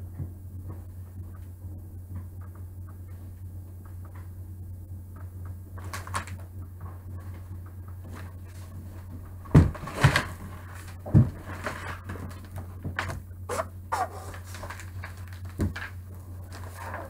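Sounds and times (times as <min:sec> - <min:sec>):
low electrical hum: 0:00.0 - 0:17.0
paper crinkling and rustling: 0:05.8 - 0:06.5, 0:08.0 - 0:17.0
knocks on cardboard box: 0:09.5 - 0:10.2.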